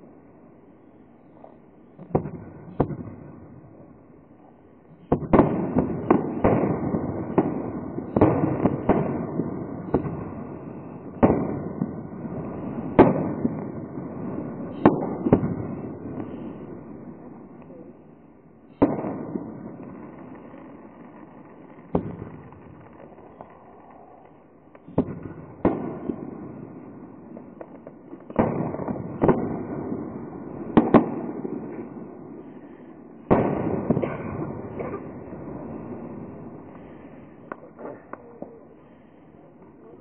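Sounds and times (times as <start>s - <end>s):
firework shells bursting: 18.7s - 38.6s.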